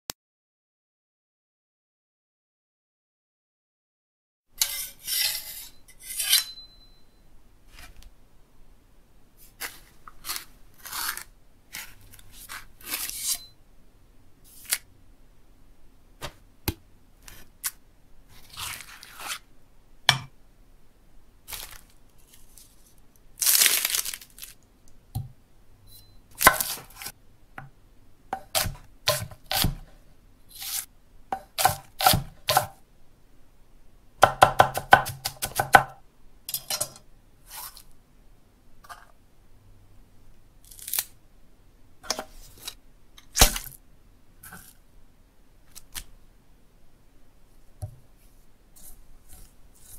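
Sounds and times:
rustling and tearing: 9.4s - 13.4s, 17.3s - 19.4s, 21.5s - 24.6s, 40.6s - 41.2s.

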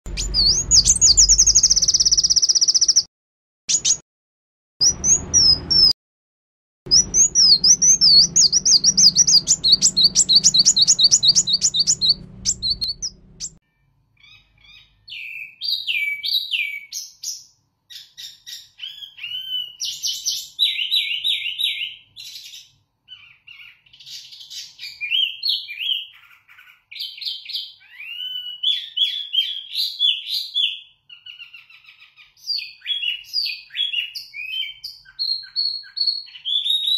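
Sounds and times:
low hum: 0.1s - 2.2s, 6.9s - 13.6s
songbird trills: 0.1s - 3.1s, 6.9s - 13.6s
whistled bird phrases: 0.1s - 3.1s, 3.7s - 4.0s, 4.8s - 6.0s, 6.9s - 13.6s, 14.2s - 36.9s.

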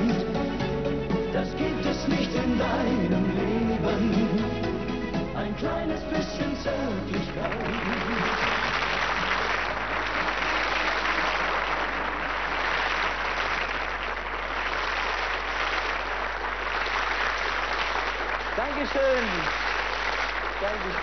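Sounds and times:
music: 0.0s - 12.7s
audience applauding: 7.0s - 21.0s.

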